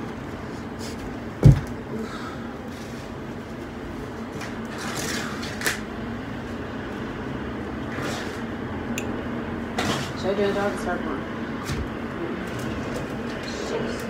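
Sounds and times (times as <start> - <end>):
heavy thump: 1.4 - 1.8.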